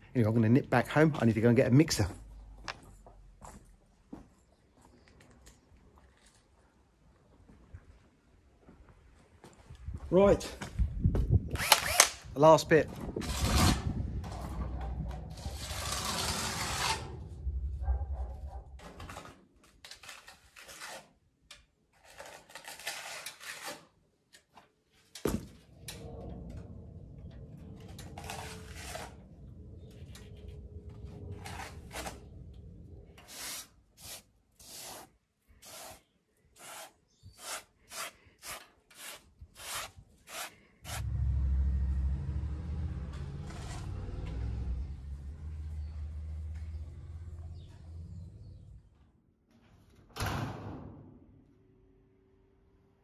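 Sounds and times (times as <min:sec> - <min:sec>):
sponge float scraping cement: 0:15.3 - 0:17.2, 0:33.2 - 0:41.0.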